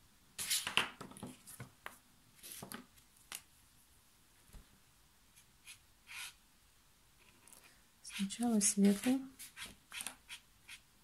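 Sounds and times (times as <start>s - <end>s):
soft rustles against paper: 0.4s - 3.5s, 7.2s - 10.2s
plastic markers clicking and tapping: 8.8s - 10.8s.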